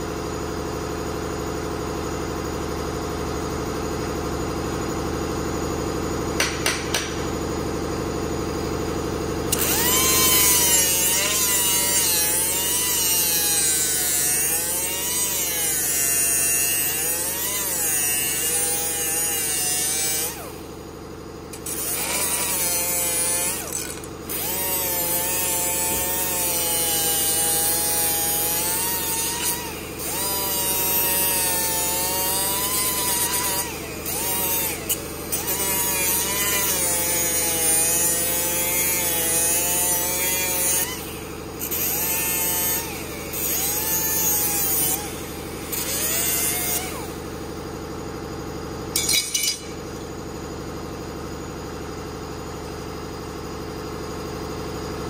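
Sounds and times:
background hum: 3.2s - 51.6s
disc grinder whining: 9.5s - 20.4s, 21.5s - 39.0s.

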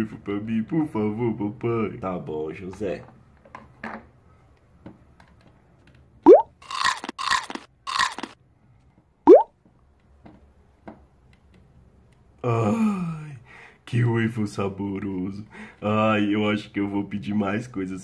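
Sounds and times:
crunchy cartoon chomps: 6.3s - 8.4s.

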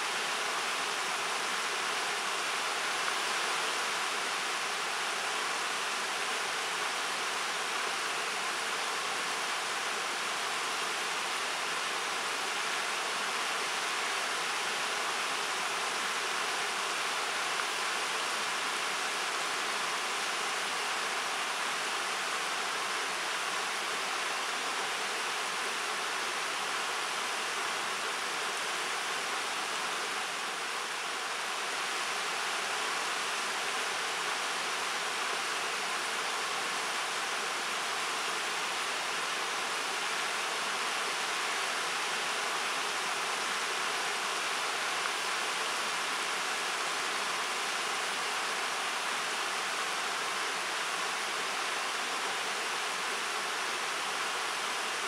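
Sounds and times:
river rushing over rocks: 0.0s - 55.0s.

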